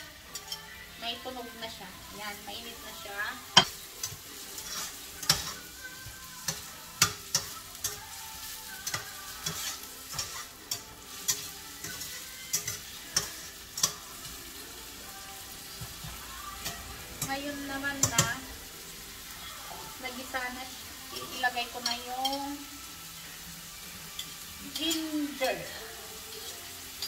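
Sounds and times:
onions sizzling in a frying pan: 0.0 - 27.0
spatula scraping and tapping pan: 3.6 - 8.1, 8.8 - 14.0.

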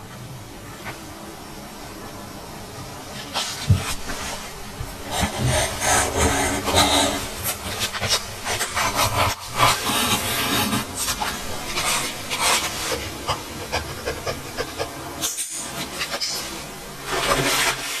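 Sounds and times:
pen scratching on paper: 5.0 - 15.0.

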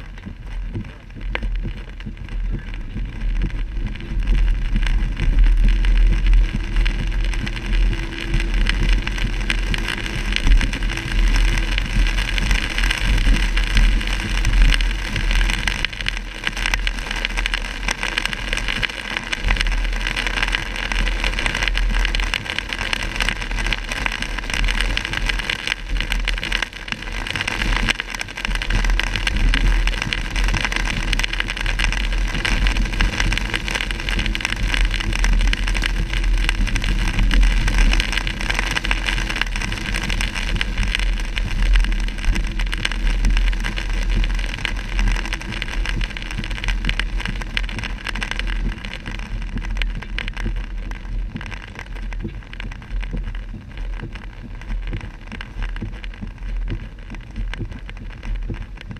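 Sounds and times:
heavy rain drumming on car roof: 0.0 - 58.9
steady low rumble: 0.0 - 58.9.

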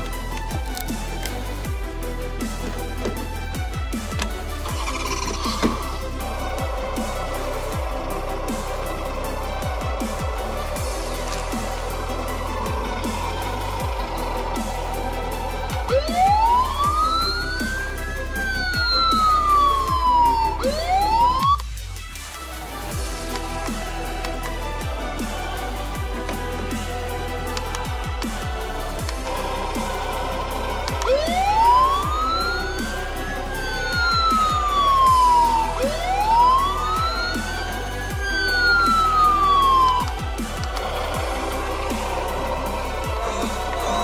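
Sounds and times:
electronic music with steady beat: 0.0 - 44.0
toy siren wail: 4.6 - 6.0, 15.9 - 21.6, 30.9 - 40.7.

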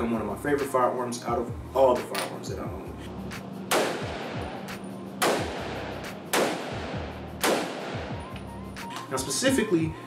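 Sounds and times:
background music: 0.0 - 10.0
gunshots echoing indoors: 3.7 - 4.6, 5.2 - 8.2.

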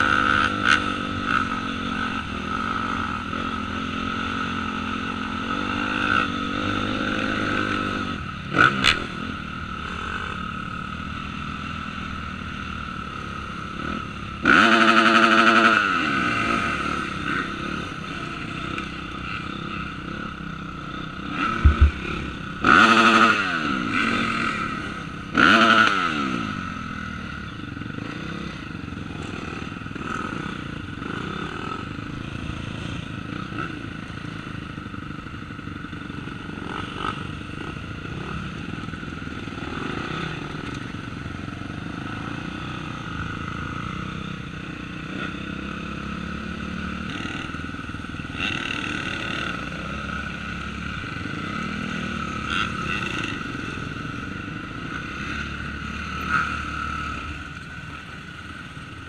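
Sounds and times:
dirt bike engines running: 0.0 - 59.0.

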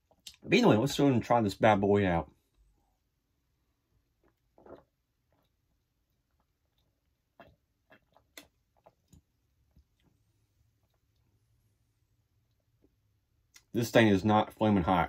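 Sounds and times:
person gulping drink: 3.8 - 11.5.

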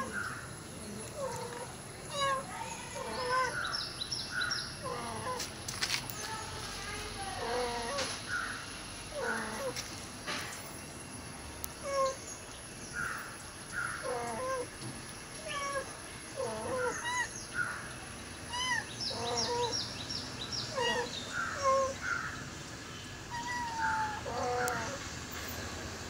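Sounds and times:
kitten mewing: 20.7 - 22.0, 23.3 - 25.0.

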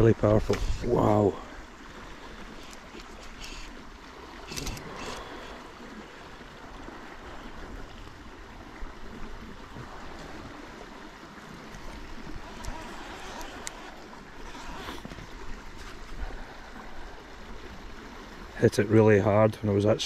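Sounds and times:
river water flowing: 0.0 - 20.0.

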